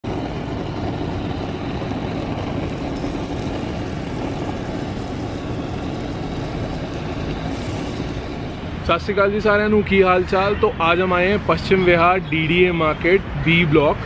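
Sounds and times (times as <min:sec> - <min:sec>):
butter sizzling on griddle: 0:00.0 - 0:09.1
blowtorch flame rushing: 0:00.0 - 0:10.6.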